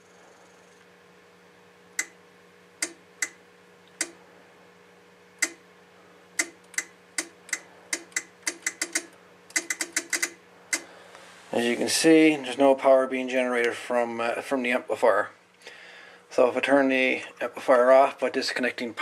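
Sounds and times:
faint steady hum: 0.0s - 19.0s
sharp mechanical clicks: 2.8s - 3.4s, 5.4s - 5.6s, 6.4s - 10.9s.

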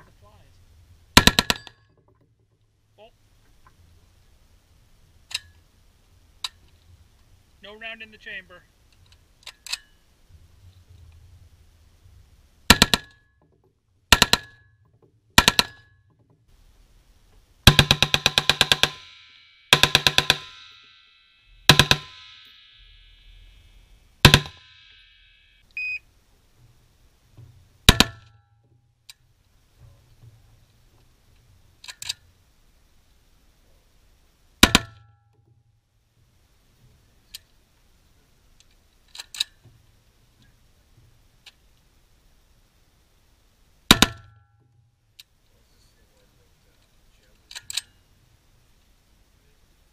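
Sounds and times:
rifle shots: 1.2s - 1.8s, 12.7s - 13.2s, 15.4s - 15.9s, 17.6s - 20.8s, 21.6s - 25.5s
ringing echo of gunshots: 24.2s - 25.3s.

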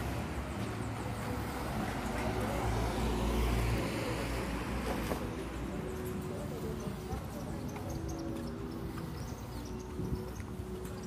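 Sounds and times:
vehicle passing: 0.0s - 7.6s.

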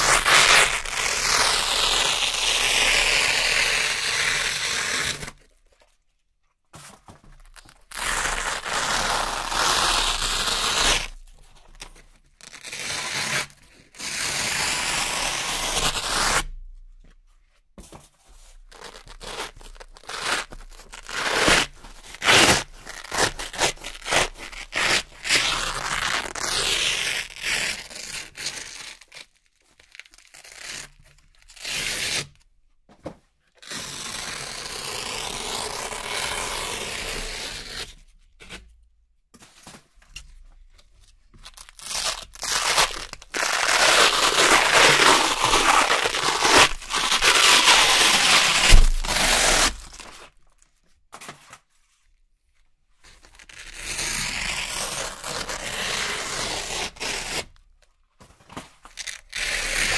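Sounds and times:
velcro strips ripping apart: 0.0s - 5.5s, 7.5s - 16.6s, 18.7s - 32.4s, 33.6s - 37.9s, 41.4s - 50.4s, 53.2s - 57.6s, 58.8s - 59.9s.

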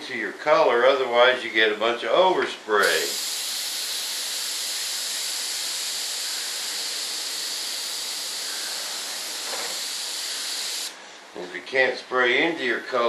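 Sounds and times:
paint spray gun hissing: 2.8s - 11.0s.

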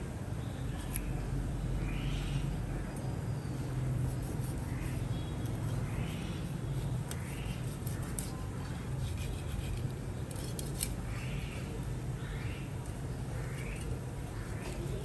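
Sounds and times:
cleaver scraping fish fillet: 4.1s - 11.0s.

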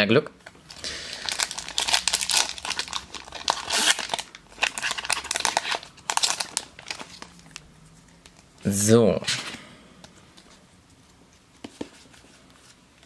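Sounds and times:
foil wrapper crinkling and tearing: 0.7s - 7.6s.

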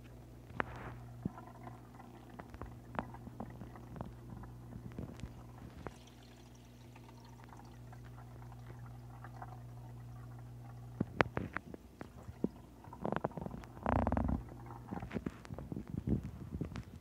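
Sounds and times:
water bubbling: 0.0s - 16.0s
aquarium equipment hum: 0.0s - 17.0s.

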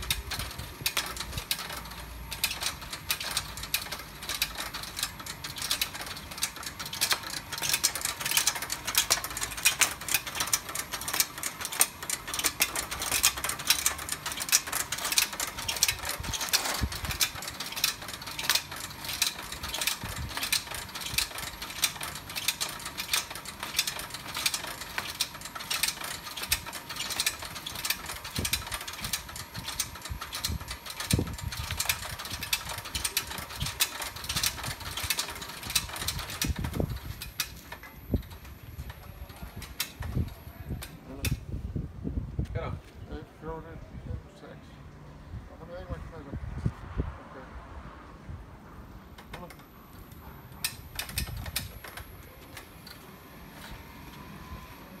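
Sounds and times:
machine clicking rapidly: 0.0s - 41.4s, 50.6s - 52.8s.

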